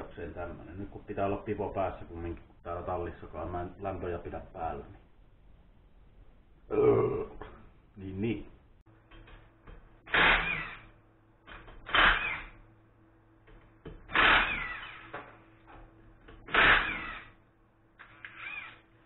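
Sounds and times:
impact wrench bursts: 0:10.1 - 0:10.9, 0:11.8 - 0:12.6, 0:14.1 - 0:15.2, 0:16.5 - 0:17.4, 0:18.0 - 0:18.8.

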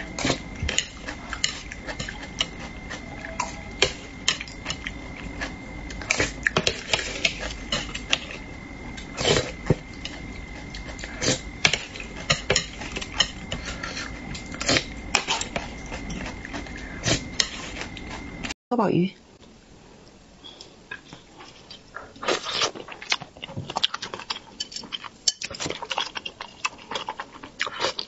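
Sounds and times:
faint steady high tone: 0:00.0 - 0:19.2
utensils clinking on ceramic plate: 0:00.2 - 0:04.9, 0:11.6 - 0:16.8, 0:24.2 - 0:26.6.

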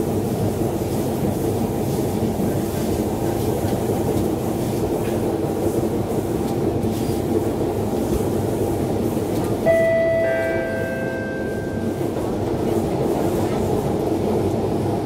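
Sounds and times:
train wheels rumbling on rails: 0:00.0 - 0:15.0
high-pitched tone: 0:09.7 - 0:12.2.

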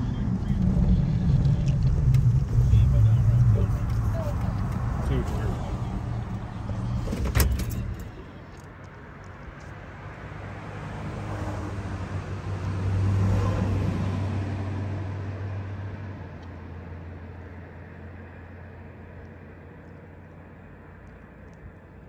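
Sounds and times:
vehicle passing by: 0:00.0 - 0:08.4, 0:09.8 - 0:18.5.

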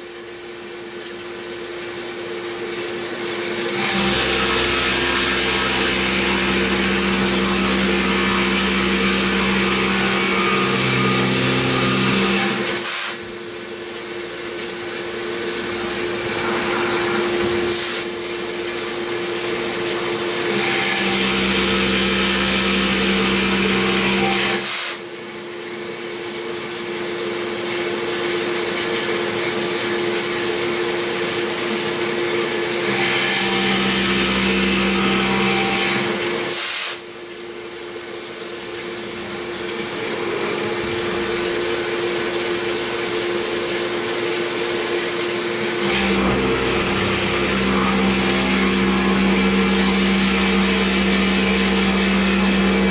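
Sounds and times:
milling machine cutting metal: 0:02.7 - 0:13.4, 0:14.8 - 0:25.0, 0:27.6 - 0:37.0, 0:38.6 - 0:52.9
spindle whine: 0:15.1 - 0:20.2, 0:45.0 - 0:52.9.

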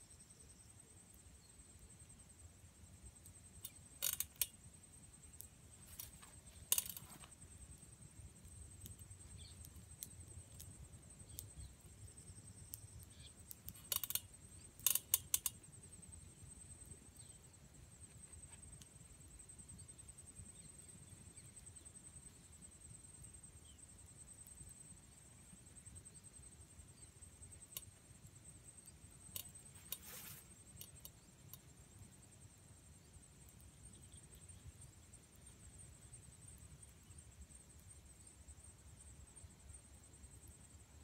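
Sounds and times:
faint high-pitched hum: 0:00.0 - 0:41.0
sharp clicks and pops: 0:03.2 - 0:04.6, 0:05.4 - 0:07.4, 0:08.4 - 0:15.7, 0:29.3 - 0:31.7.

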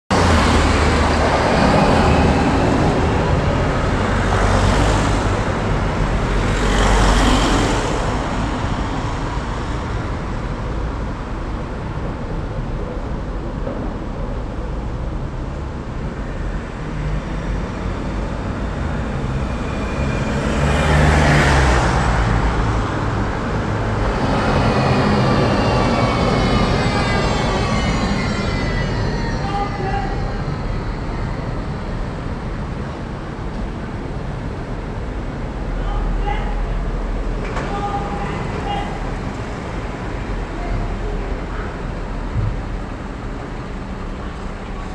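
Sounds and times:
city street traffic: 0:00.1 - 0:44.9
vehicles passing: 0:00.1 - 0:44.9
high wavering squeal: 0:24.0 - 0:32.8.

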